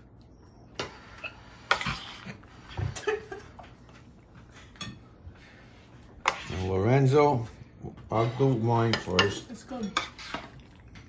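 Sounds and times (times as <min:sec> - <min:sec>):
utensil clinking on metal pan and plates: 0:04.6 - 0:05.2, 0:08.0 - 0:10.6.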